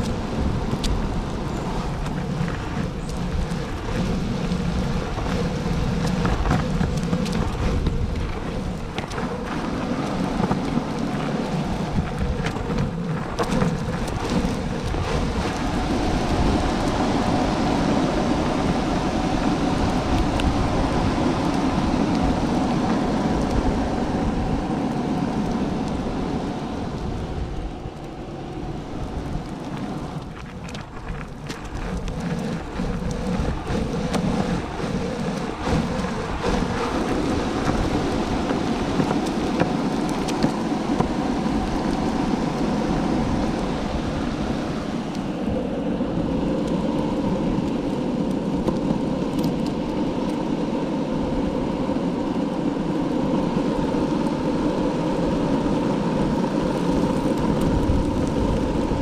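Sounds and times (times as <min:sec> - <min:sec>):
longboard wheels rolling on pavement: 0:00.0 - 0:59.0.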